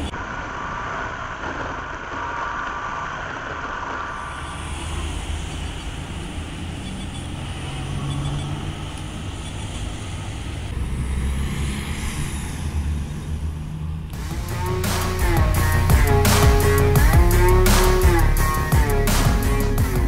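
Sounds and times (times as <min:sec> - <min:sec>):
music: 0:14.2 - 0:20.0.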